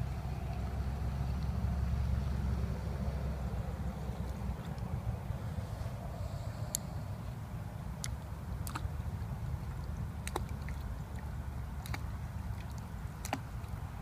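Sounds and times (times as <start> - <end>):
low steady rumble: 0.0 - 14.0
sharp little clicks or plops: 8.0 - 8.9, 9.8 - 13.8.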